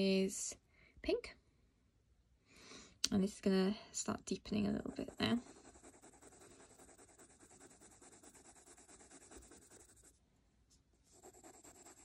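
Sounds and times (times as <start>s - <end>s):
pencil scratching on paper: 4.8s - 10.2s, 11.1s - 12.0s.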